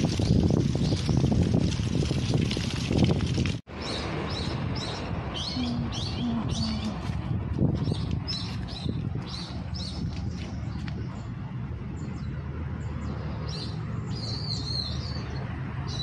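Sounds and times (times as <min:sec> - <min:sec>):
small birds chirping: 0:03.8 - 0:07.1, 0:07.8 - 0:11.4, 0:12.0 - 0:16.0.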